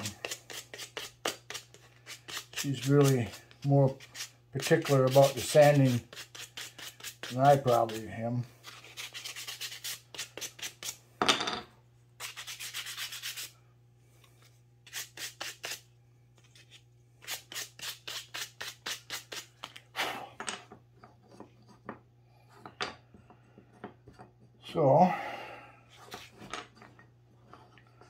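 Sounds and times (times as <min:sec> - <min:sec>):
sandpaper rubbing wood: 0:00.0 - 0:11.0, 0:12.2 - 0:13.5, 0:14.8 - 0:15.8, 0:17.2 - 0:19.5.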